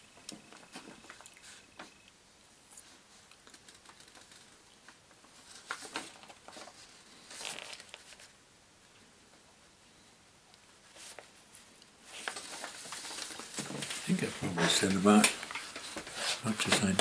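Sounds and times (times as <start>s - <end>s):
paper rustling and crinkling: 2.8s - 8.4s, 10.8s - 17.0s.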